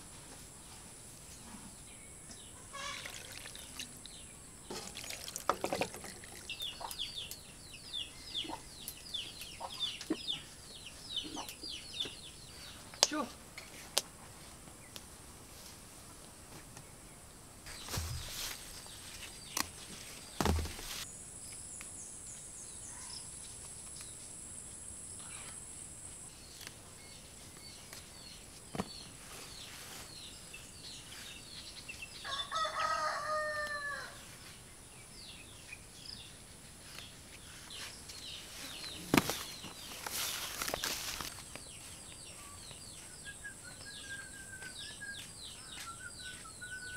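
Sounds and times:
rural outdoor ambience: 0.0 - 46.9
rooster crowing: 32.2 - 34.2.

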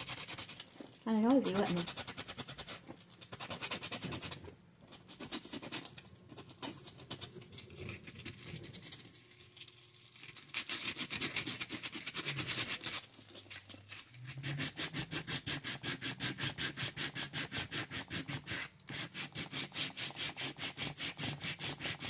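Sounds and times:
sanding stick rubbing resin: 0.0 - 0.6, 1.2 - 8.8, 10.3 - 13.1, 14.0 - 22.0.

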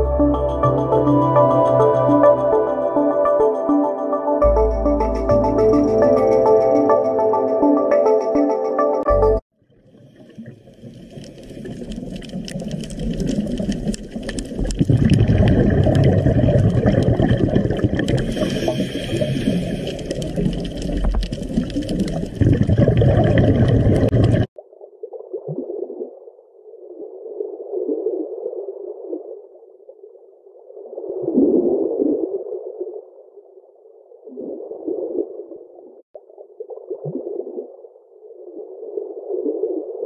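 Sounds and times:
underwater watery wash: 9.5 - 26.2.

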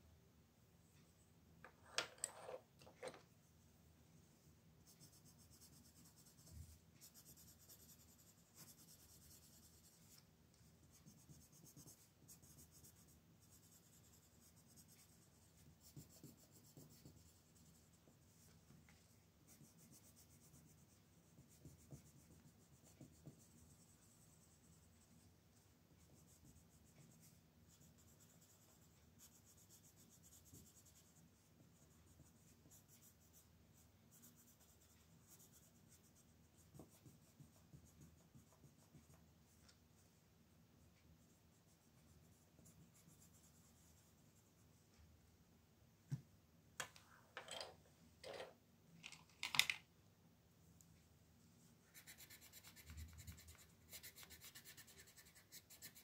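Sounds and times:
pencil scratching on paper: 4.8 - 10.2, 10.8 - 18.5, 19.4 - 25.3, 25.9 - 33.5, 34.1 - 39.2, 51.9 - 56.0.

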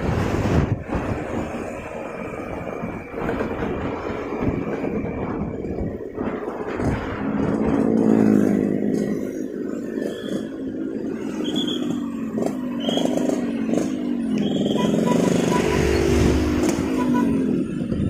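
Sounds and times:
traffic hum: 0.0 - 18.0
motorcycle engine running: 6.1 - 18.0.

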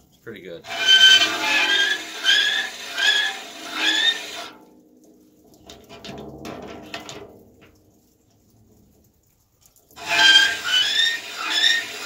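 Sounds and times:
file rasping strokes: 0.7 - 4.5, 10.0 - 12.0
file squealing on saw blade: 0.7 - 4.5, 10.0 - 12.0.

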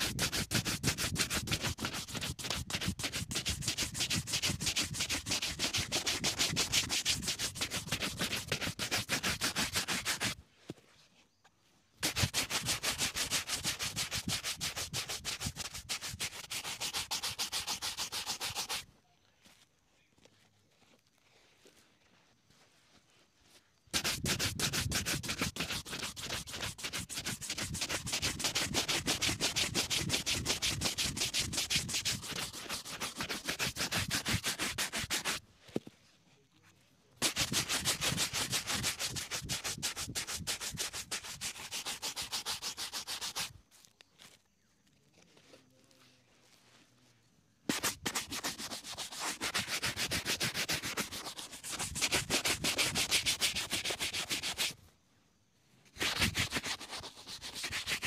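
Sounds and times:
shoe brush stroking leather: 0.0 - 10.4, 12.0 - 18.9, 23.9 - 35.4, 37.2 - 43.6, 47.7 - 54.8, 56.0 - 58.0.

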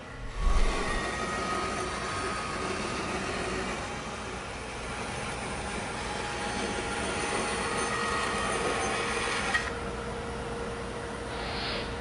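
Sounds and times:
bandsaw cutting wood: 0.4 - 9.7.

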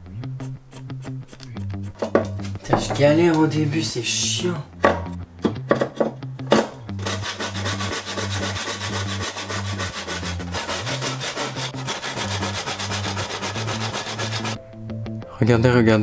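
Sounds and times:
hand saw cutting wood: 5.8 - 14.6.

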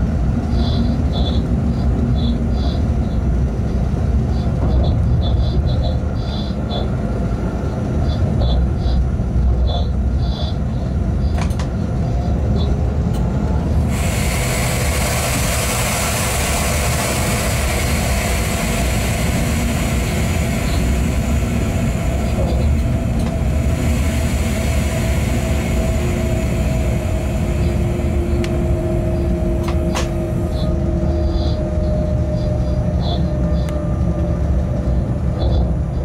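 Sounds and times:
train running rumble: 0.0 - 36.0
faint steady whine: 13.6 - 35.1
loud hiss: 13.7 - 31.6.

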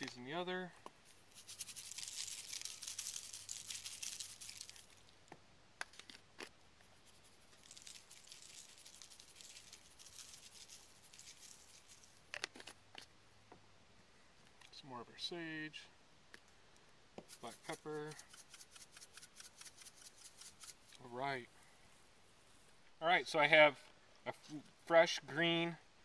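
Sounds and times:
seasoning granules pattering: 1.1 - 5.1, 7.0 - 12.4, 17.3 - 21.0
spice shaker clicks: 18.1 - 20.8.

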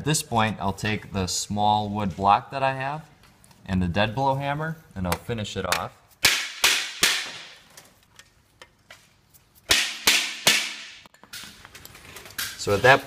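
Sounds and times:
hammer striking wood block: 5.1 - 7.6, 9.7 - 11.1.

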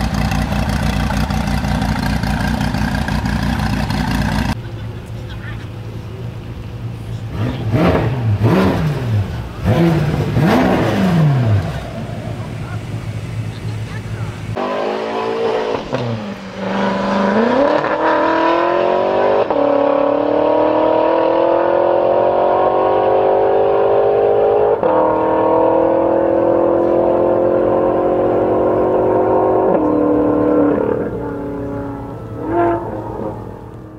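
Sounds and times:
car engine accelerating hard: 7.1 - 33.9.

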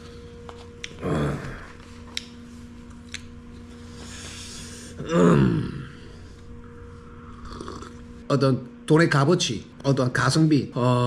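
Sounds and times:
low electrical hum: 0.0 - 11.0
man humming: 0.8 - 1.8, 4.4 - 6.3.

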